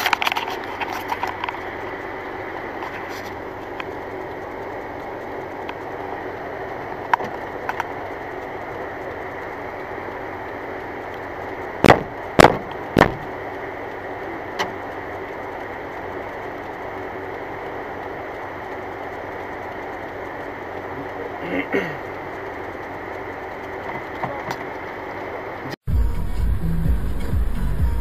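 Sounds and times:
loud knocks: 0:11.8 - 0:13.3.

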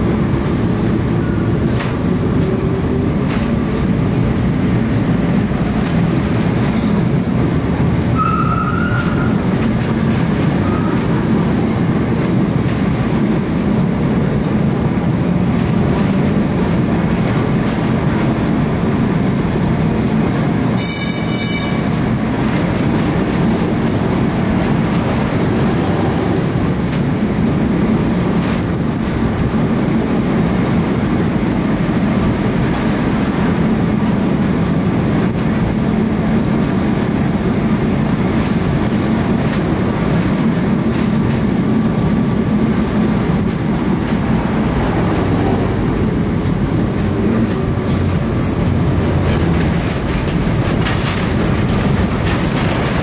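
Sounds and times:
tram wheels rumbling on rails: 0:00.0 - 0:53.0
high-pitched wheel squeals: 0:08.2 - 0:09.4, 0:20.8 - 0:21.8, 0:23.9 - 0:26.6.

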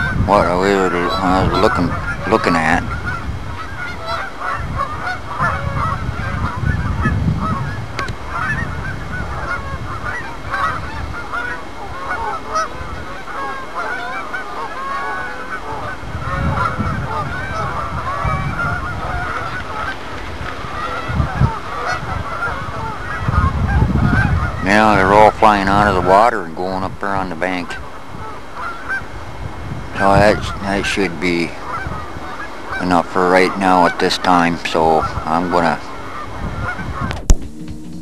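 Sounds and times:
geese honking: 0:00.0 - 0:38.0
low rumbles: 0:36.8 - 0:38.0.

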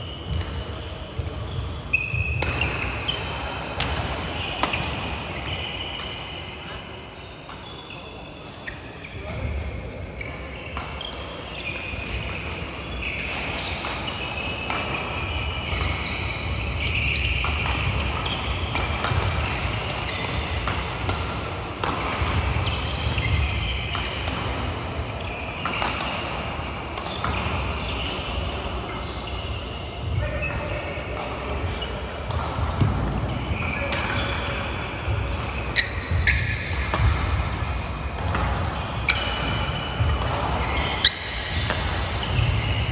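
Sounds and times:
rackets striking shuttlecocks: 0:10.3 - 0:24.9, 0:30.0 - 0:42.9
shoes squeaking on mats: 0:33.3 - 0:36.9, 0:37.7 - 0:42.9.

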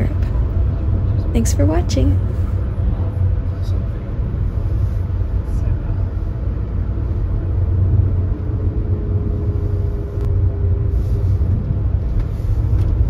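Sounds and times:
road and engine rumble inside coach: 0:00.0 - 0:13.0.

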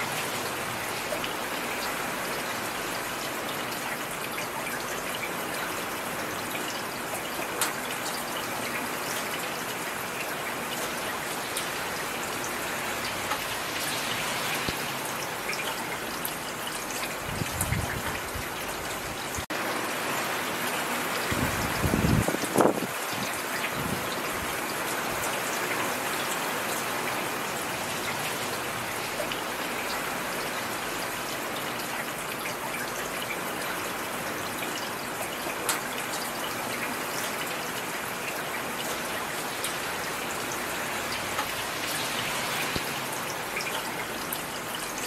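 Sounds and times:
heavy rain: 0:00.0 - 0:45.0.

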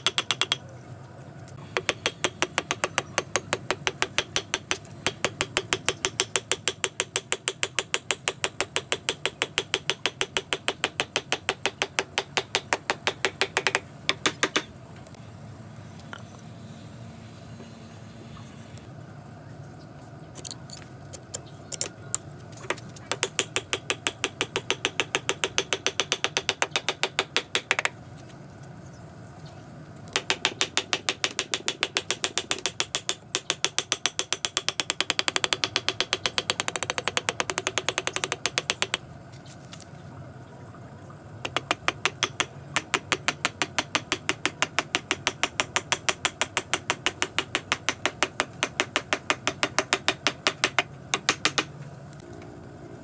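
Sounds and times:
rapid mechanical clicking: 0:00.0 - 0:00.6, 0:01.6 - 0:14.7, 0:20.4 - 0:28.0, 0:30.1 - 0:39.1, 0:41.4 - 0:52.3.

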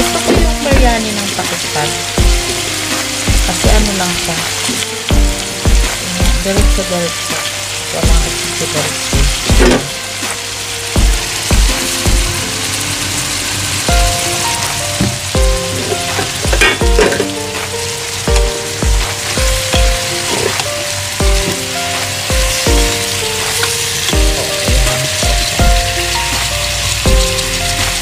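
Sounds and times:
music with kick-drum beat: 0:00.0 - 0:01.1, 0:02.2 - 0:04.0, 0:05.1 - 0:06.9, 0:08.0 - 0:08.4, 0:09.1 - 0:10.4, 0:11.0 - 0:12.5, 0:13.9 - 0:28.0
vegetables sizzling in a pan: 0:00.0 - 0:28.0.

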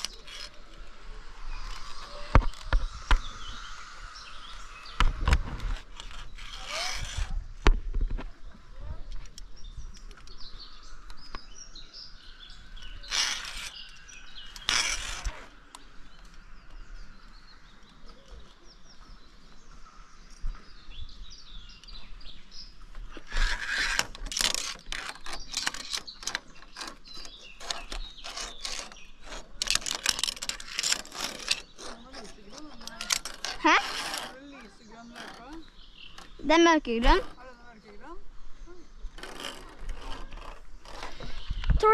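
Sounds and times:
loud rustling scrapes: 0:00.0 - 0:07.5, 0:12.8 - 0:15.6, 0:23.0 - 0:37.4, 0:39.0 - 0:41.9
close clicks and scrapes: 0:00.0 - 0:08.4, 0:12.7 - 0:16.4, 0:22.9 - 0:37.4, 0:39.0 - 0:41.9
songbirds chirping: 0:00.0 - 0:41.9.

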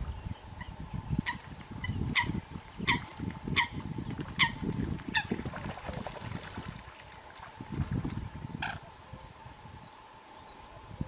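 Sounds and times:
splashing in water: 0:04.2 - 0:08.2.

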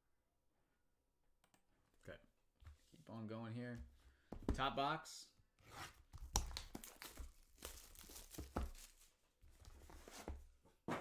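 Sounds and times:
cardboard being handled: 0:05.8 - 0:11.0.

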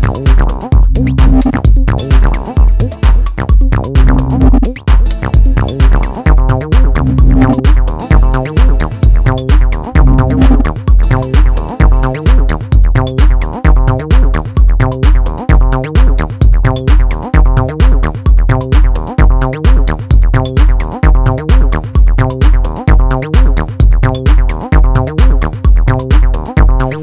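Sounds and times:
drum-machine kick beat: 0:00.0 - 0:27.0
sustained synth notes: 0:05.2 - 0:08.9, 0:10.0 - 0:12.1.

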